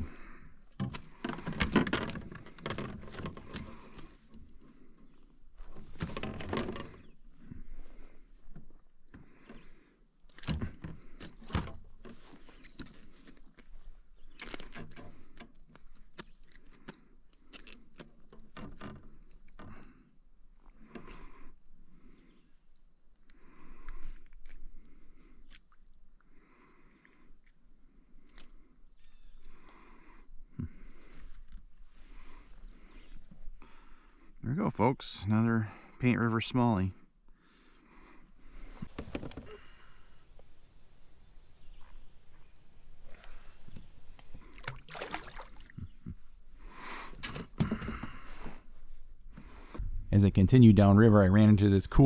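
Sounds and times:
insects droning: 0:00.0 - 0:52.0
water splashing: 0:38.9 - 0:45.9.

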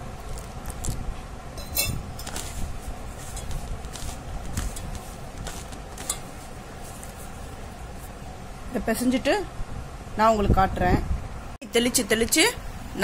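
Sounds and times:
hand mixing damp flour: 0:00.0 - 0:01.0, 0:02.0 - 0:08.5
metallic clinks on steel bowl: 0:01.6 - 0:02.0.

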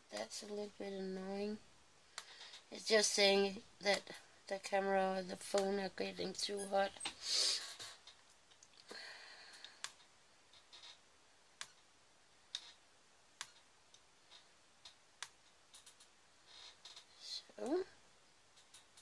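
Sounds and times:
faint plastic clicks: 0:07.8 - 0:11.0, 0:18.5 - 0:19.0.

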